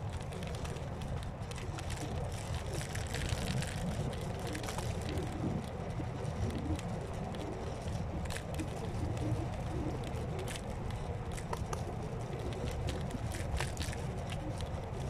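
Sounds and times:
scooter clicks and rattles: 0.0s - 15.0s
tyres rumbling on a path: 0.0s - 15.0s.

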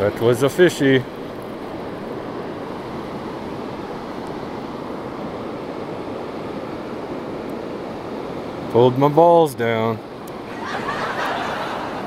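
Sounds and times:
flowing river water: 0.0s - 12.0s.

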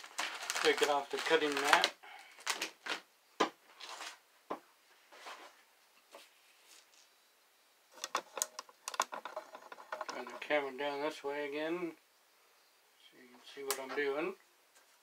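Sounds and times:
vinyl sheet peeling and crackling: 0.0s - 3.1s, 3.7s - 4.2s
clicks and rustles: 7.9s - 10.7s.

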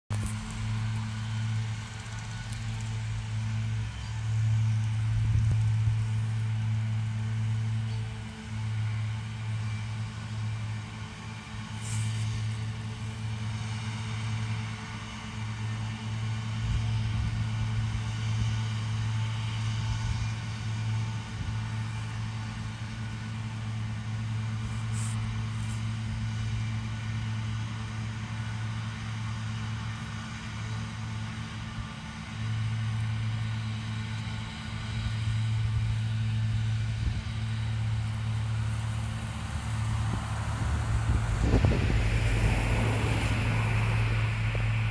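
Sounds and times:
distant tractor hum: 0.1s - 44.9s.

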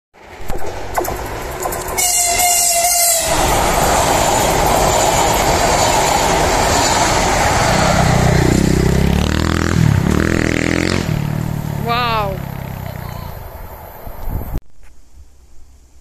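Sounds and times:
train wheels rushing on rail: 0.2s - 11.5s
train horn blast: 1.9s - 3.8s.

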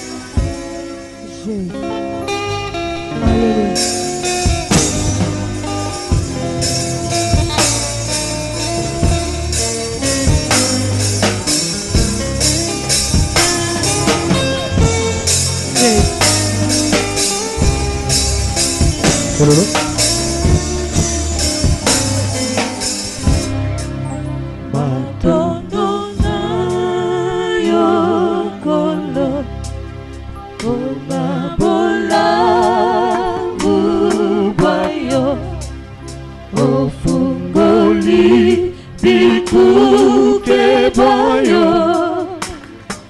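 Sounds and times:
plucked guitar: 0.0s - 22.8s
drum kit beat: 0.2s - 0.8s, 3.1s - 23.6s.

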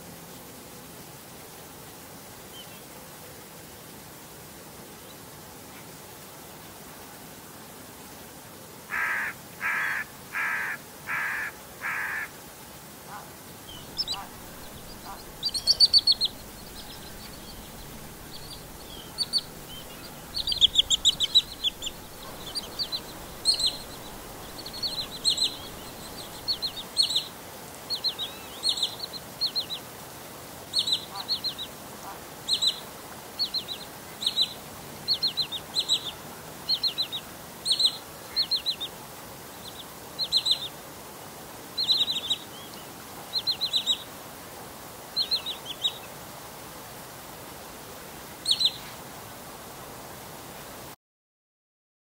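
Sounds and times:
faint hiss: 0.0s - 51.0s
bird call notes: 13.7s - 27.2s.

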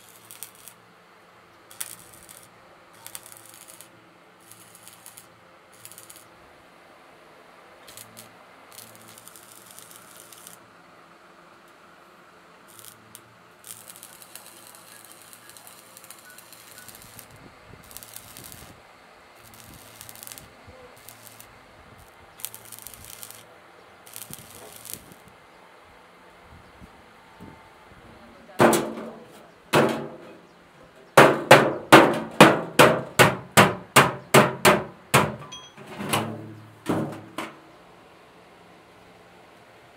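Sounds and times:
welding arc crackling: 0.0s - 0.9s, 1.6s - 6.4s, 7.8s - 10.6s, 12.6s - 25.4s.

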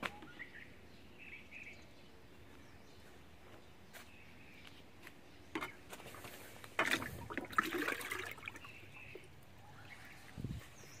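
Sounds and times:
water splashing and trickling: 6.2s - 9.5s.

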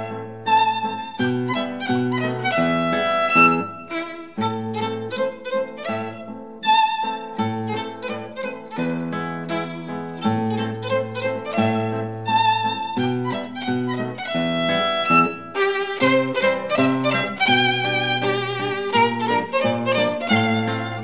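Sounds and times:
instrumental background music: 0.0s - 21.0s.

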